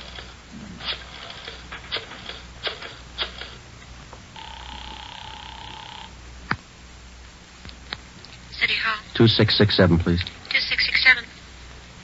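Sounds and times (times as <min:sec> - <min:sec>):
telephone tone: 0:04.4 - 0:06.2.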